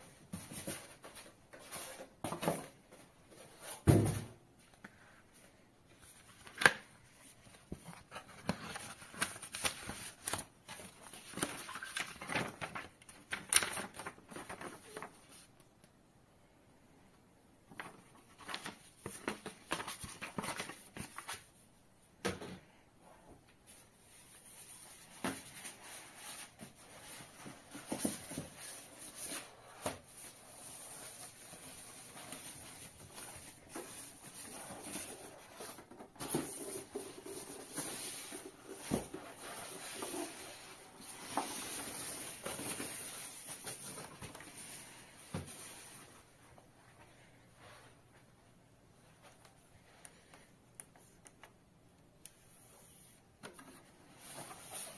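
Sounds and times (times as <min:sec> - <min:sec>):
paper and plastic wrap rustling: 0:07.2 - 0:15.5, 0:24.2 - 0:46.2.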